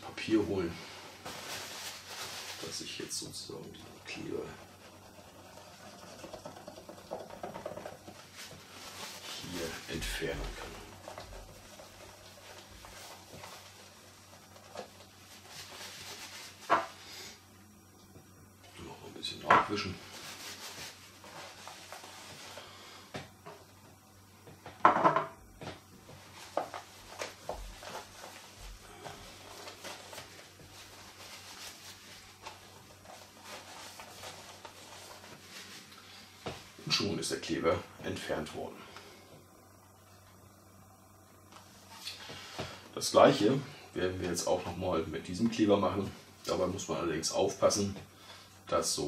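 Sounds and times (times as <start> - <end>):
paper towel rubbing plastic: 0.0 - 17.1, 19.7 - 22.8, 26.0 - 37.6.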